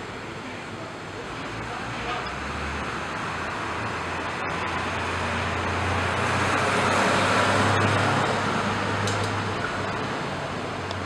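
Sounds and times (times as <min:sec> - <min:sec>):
motor vehicle passing: 0:01.3 - 0:11.0.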